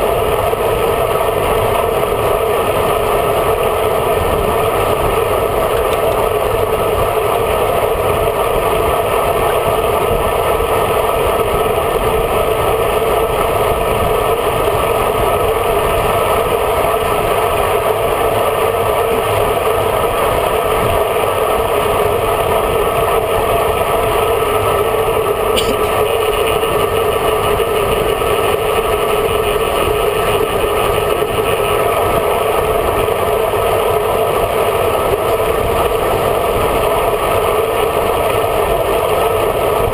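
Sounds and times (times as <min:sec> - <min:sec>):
short click: 0:25.6 - 0:26.0.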